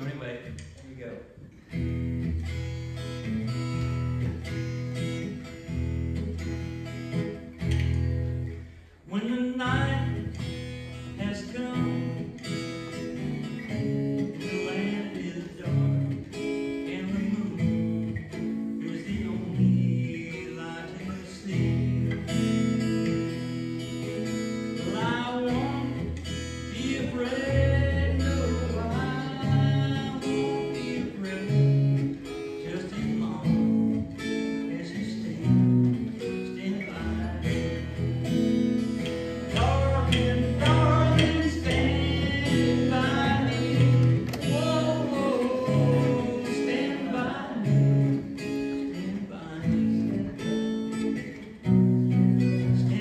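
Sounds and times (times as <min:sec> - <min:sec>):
acoustic guitar strummed: 0:00.0 - 0:53.0
person singing: 0:39.5 - 0:50.8.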